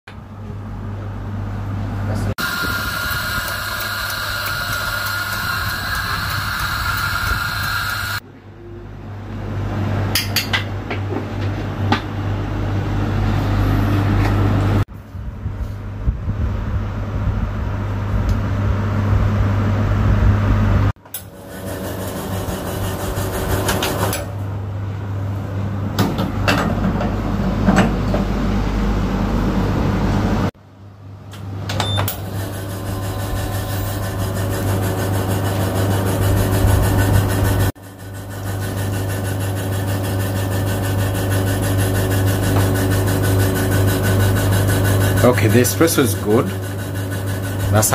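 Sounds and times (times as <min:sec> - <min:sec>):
espresso machine humming: 0:02.4 - 0:08.2, 0:21.2 - 0:24.4, 0:32.1 - 0:47.9.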